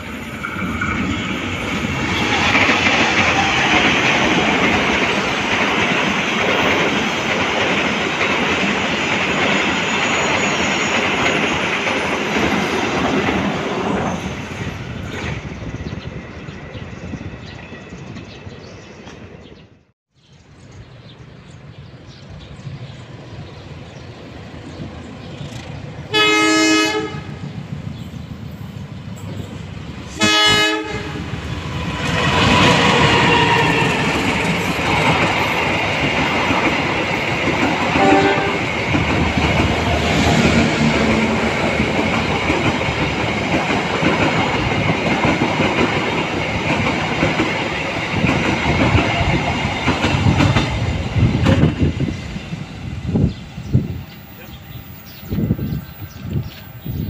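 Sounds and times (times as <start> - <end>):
train rumble: 0.0 - 19.6, 21.2 - 57.0
train horn blasts: 26.1 - 27.5, 30.2 - 31.3, 38.0 - 38.7.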